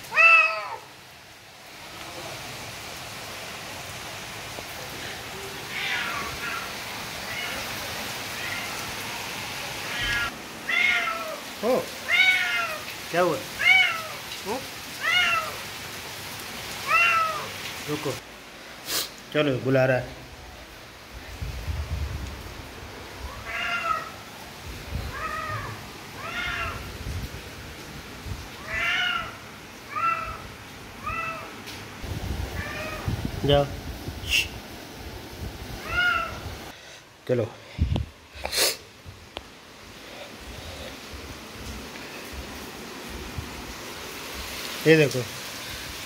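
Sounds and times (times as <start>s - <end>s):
cat meowing: 0.1s - 0.9s, 5.3s - 9.2s, 9.8s - 12.9s, 13.6s - 14.3s, 15.0s - 15.7s, 16.8s - 17.5s, 23.2s - 24.2s, 24.9s - 26.9s, 28.6s - 31.6s, 32.5s - 33.2s, 35.8s - 36.4s.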